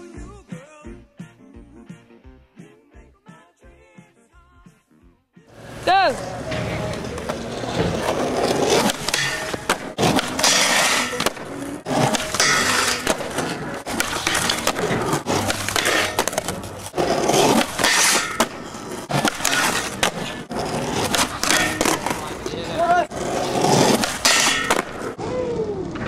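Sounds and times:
skateboard wheels rolling on concrete: 0:05.5 - 0:26.0
board grinding on metal bar: 0:07.8 - 0:22.3, 0:23.1 - 0:25.0
skateboard wooden clacks: 0:23.6 - 0:25.1.

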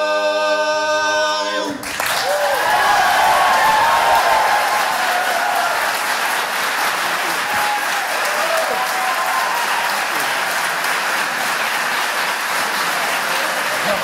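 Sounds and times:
audience applauding: 0:01.8 - 0:14.0.

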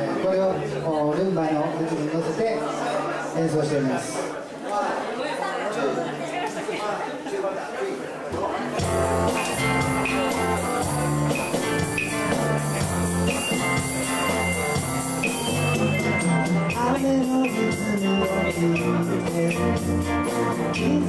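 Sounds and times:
live band playing rumba: 0:08.5 - 0:21.0
electric bass line: 0:08.8 - 0:21.0.

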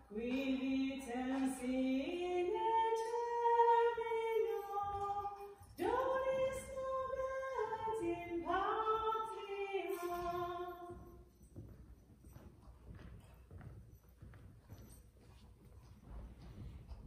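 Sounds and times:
woman singing a hymn: 0:00.0 - 0:11.3.

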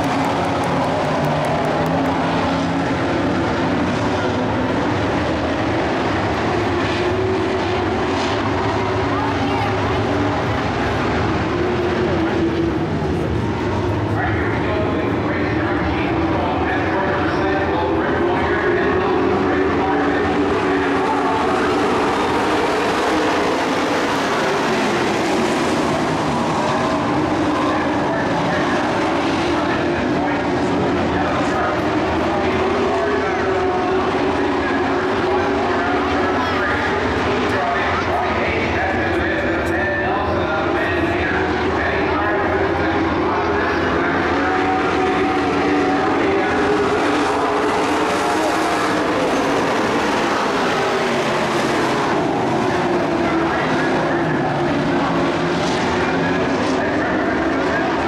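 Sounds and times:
racing truck engines droning: 0:00.0 - 0:58.0.

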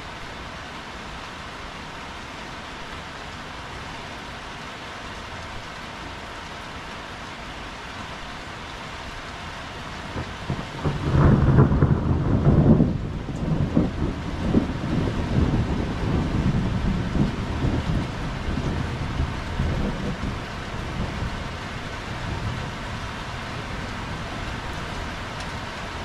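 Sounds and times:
heavy rain: 0:00.0 - 0:26.0
thunder rumbling: 0:10.1 - 0:25.7.

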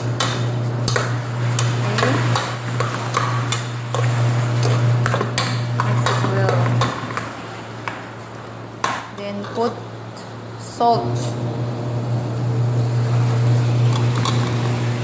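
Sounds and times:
metal spoon scraping a pot: 0:00.8 - 0:07.2.

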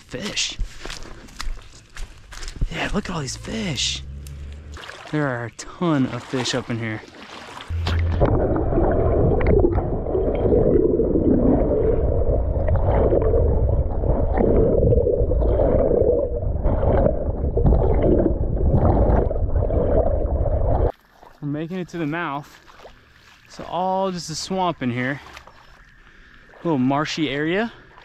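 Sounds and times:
underwater rushing and gurgling: 0:02.7 - 0:20.9.

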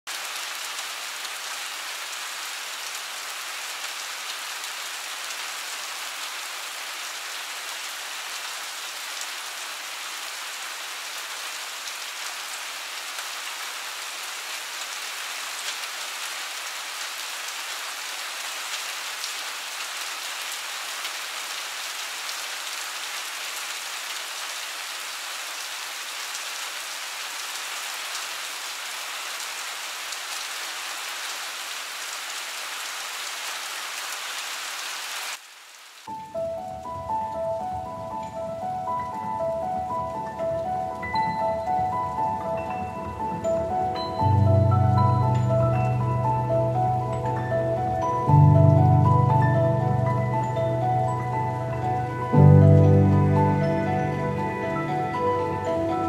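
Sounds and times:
light rain on pavement: 0:00.1 - 0:38.2.

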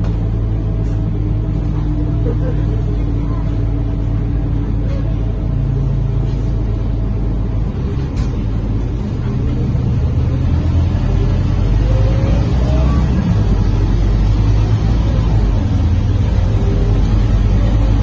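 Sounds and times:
bus diesel engine drone: 0:00.0 - 0:18.0.

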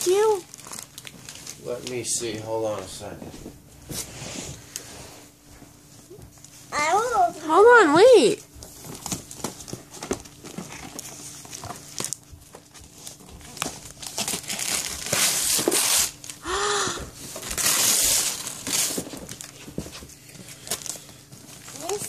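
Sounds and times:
wrapping paper crinkling and tearing: 0:00.0 - 0:02.9, 0:08.7 - 0:22.0.

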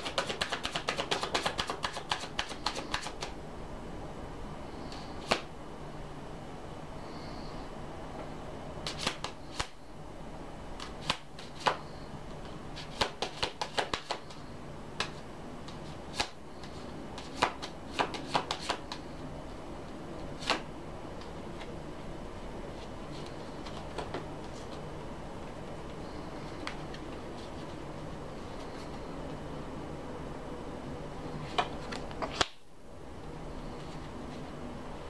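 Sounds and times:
cards being shuffled: 0:00.0 - 0:03.4, 0:08.8 - 0:09.7, 0:22.8 - 0:24.8
faint low hum: 0:00.0 - 0:35.0.

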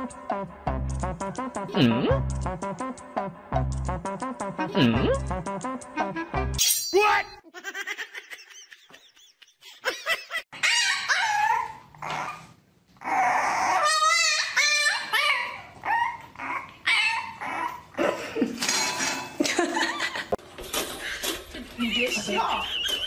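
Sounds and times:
dogs whining and yipping: 0:10.6 - 0:18.9.

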